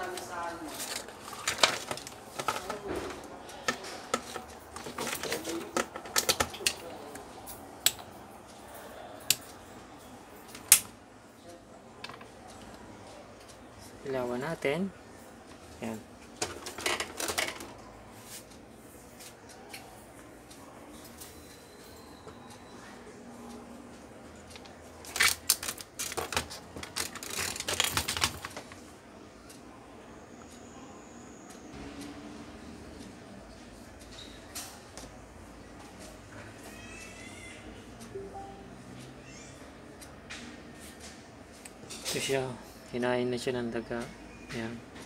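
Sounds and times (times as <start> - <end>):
hard objects clicking and clattering: 0.0 - 7.2, 16.4 - 17.8, 24.5 - 28.8.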